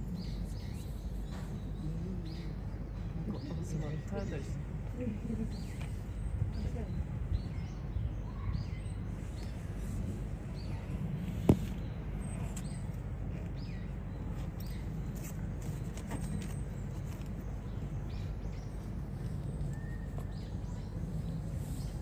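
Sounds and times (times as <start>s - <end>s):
low outdoor background hum: 0.0s - 22.0s
faint bird chirps: 5.4s - 22.0s.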